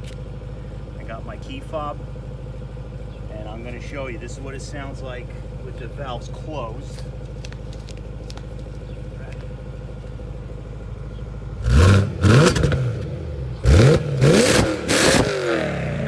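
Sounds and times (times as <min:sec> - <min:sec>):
car engine idling: 0:00.0 - 0:16.0
engine revving: 0:11.5 - 0:16.0.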